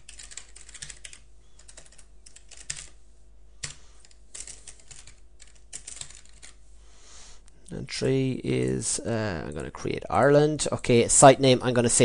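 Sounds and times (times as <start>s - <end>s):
typing on computer keyboard: 0.0s - 2.9s, 3.6s - 6.6s.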